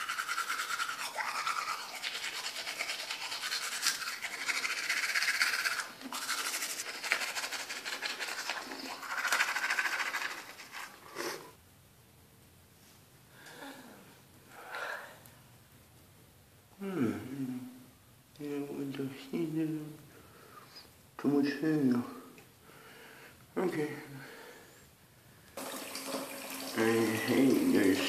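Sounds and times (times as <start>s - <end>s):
toothbrush scrubbing teeth: 0.0s - 11.4s.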